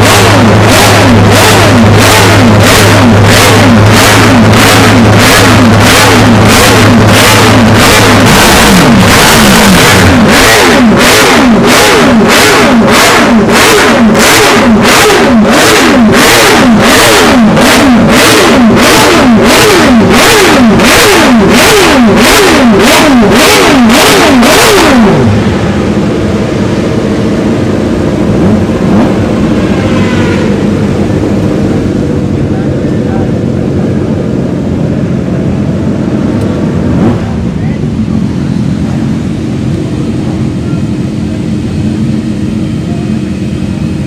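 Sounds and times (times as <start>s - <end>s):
motorcycle engine revving: 0.0s - 44.0s
motorcycle engine idling: 25.1s - 44.0s.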